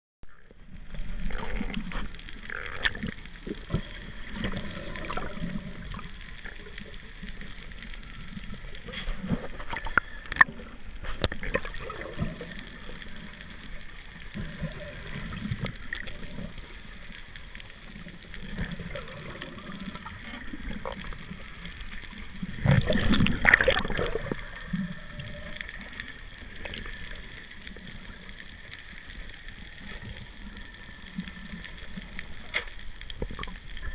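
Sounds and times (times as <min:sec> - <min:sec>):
underwater water movement: 0:00.2 - 0:33.9
underwater clicks and knocks: 0:08.8 - 0:12.4, 0:22.4 - 0:24.5
water rushing burst: 0:18.4 - 0:27.4.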